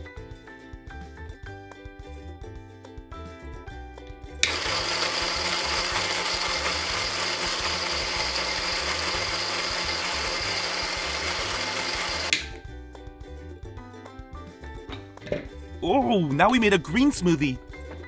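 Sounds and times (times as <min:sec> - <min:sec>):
toy blender whirring: 0:04.4 - 0:12.5.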